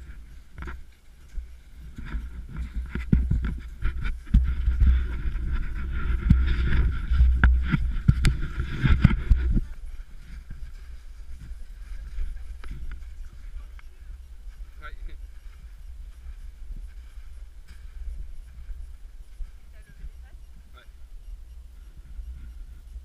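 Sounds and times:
wind buffeting microphone: 0.0 - 23.0
camera knocks and rustles: 2.0 - 9.6.

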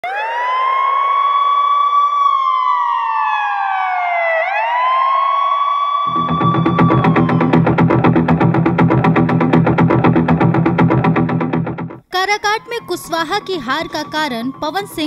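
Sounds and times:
siren wailing: 0.0 - 15.0
music with steady beat: 6.1 - 12.1.

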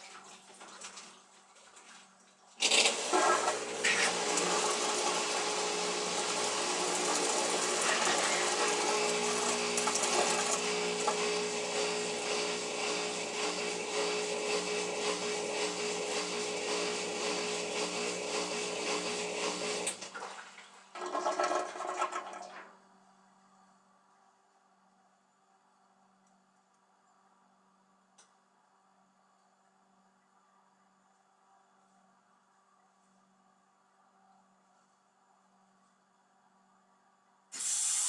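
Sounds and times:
washing machine whirring: 0.0 - 23.6, 37.5 - 38.0.

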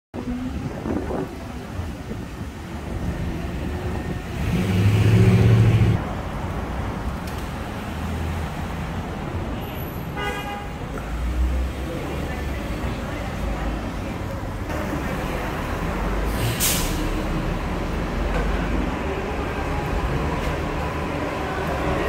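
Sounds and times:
low-pitched vehicle horn blast: 10.2 - 10.8.

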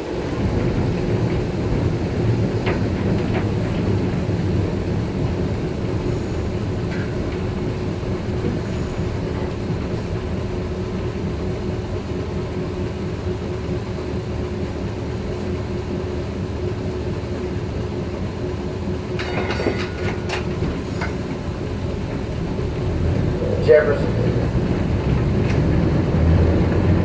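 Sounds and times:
tram rolling on track: 0.0 - 27.0.

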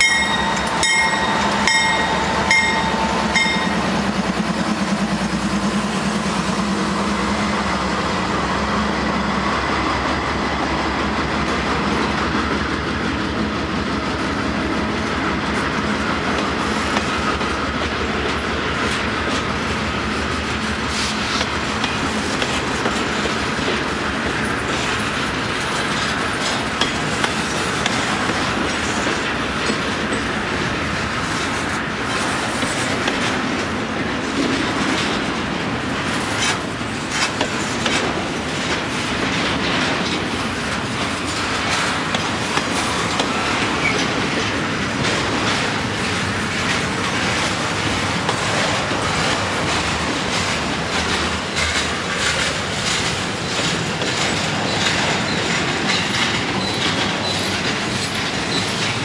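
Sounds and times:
wheels clicking over rail joints: 0.0 - 3.9, 20.8 - 59.0
train wheels rumbling on rail: 0.0 - 59.0.

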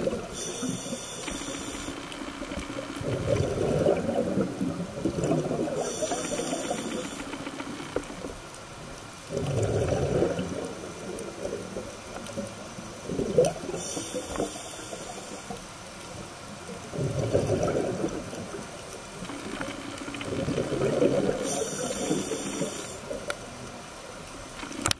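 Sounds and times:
exhaled bubbles rumbling: 0.0 - 1.0, 2.4 - 7.0, 9.2 - 13.9, 16.6 - 22.4
regulator inhale hiss: 0.2 - 2.2, 5.8 - 7.6, 13.7 - 15.6, 21.4 - 23.2.

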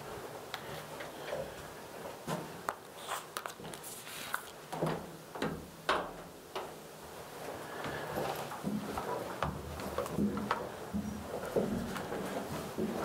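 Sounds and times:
footsteps going down stairs: 4.5 - 13.0.

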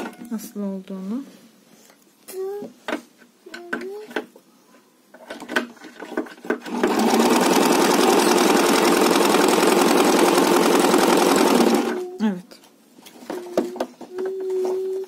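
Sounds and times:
sewing machine stitching: 6.0 - 12.0.

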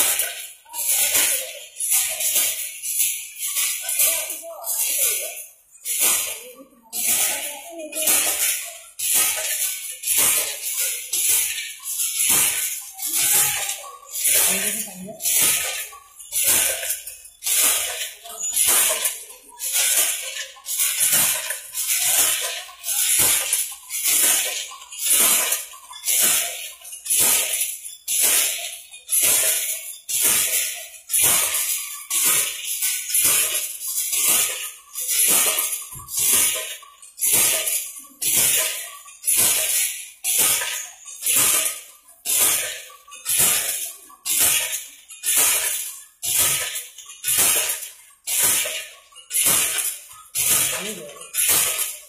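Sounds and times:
hand loom clattering: 0.0 - 52.0.

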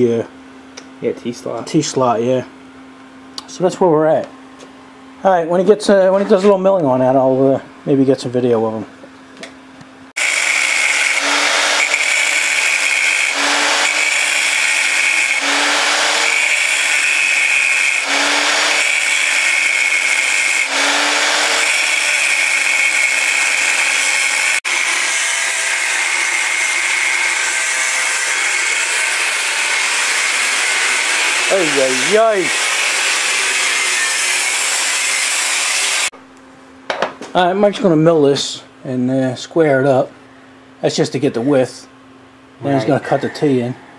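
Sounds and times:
angle grinder cutting steel: 10.2 - 36.1.

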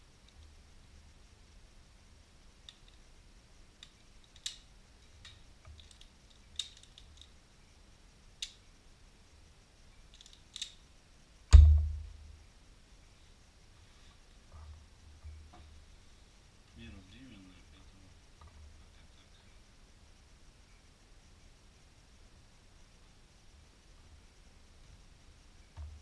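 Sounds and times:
heavy thump: 11.5 - 12.2.

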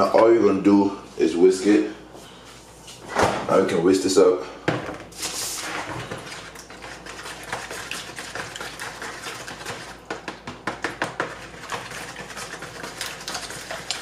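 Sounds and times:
whisk clicking against bowl: 7.0 - 14.0.

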